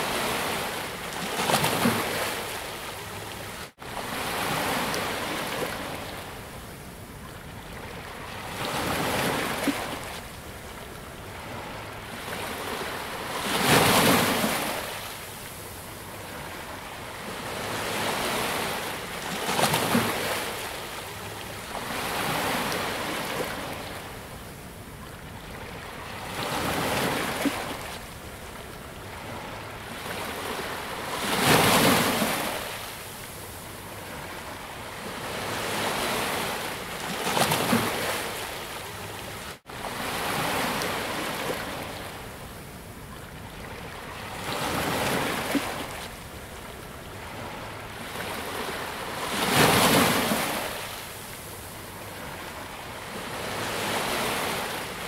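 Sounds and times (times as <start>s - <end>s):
waves breaking: 29.1s - 42.1s, 43.3s - 55.0s.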